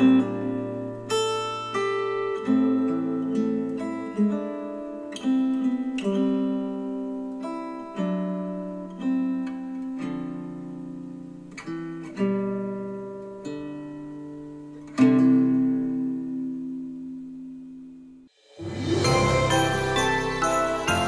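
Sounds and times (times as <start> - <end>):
strummed guitar chords: 18.6 - 21.0.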